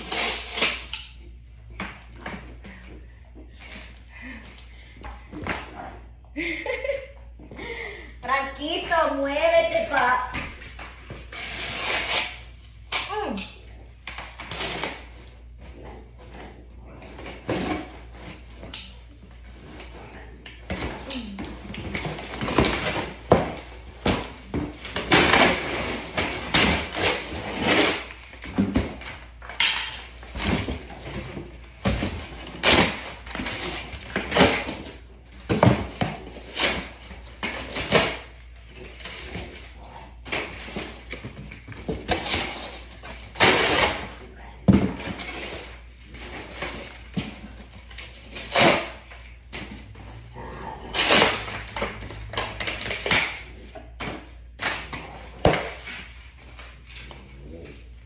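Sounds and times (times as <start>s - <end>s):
cardboard ripping: 11.1s - 13.2s, 20.6s - 29.4s.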